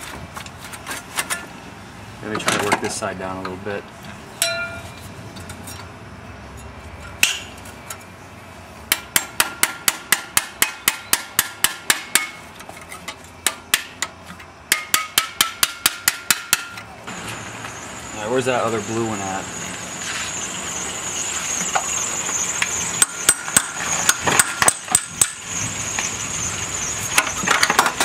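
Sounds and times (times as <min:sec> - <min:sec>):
metal tools clanking on engine: 0:02.3 - 0:05.9, 0:12.1 - 0:17.0, 0:21.6 - 0:26.2, 0:26.8 - 0:28.0
sharp metallic taps: 0:14.7 - 0:16.8.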